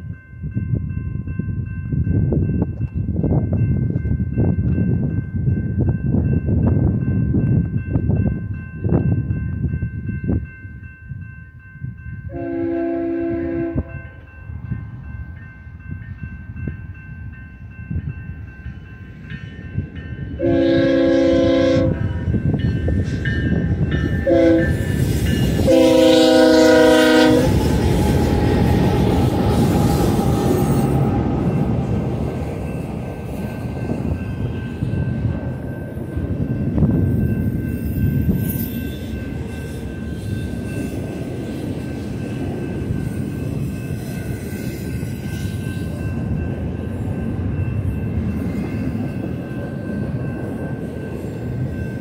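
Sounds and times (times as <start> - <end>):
train wheels on rails: 1.6 - 52.0
locomotive air horn blasts: 12.3 - 14.0, 20.4 - 22.1, 24.2 - 24.9, 25.6 - 27.6.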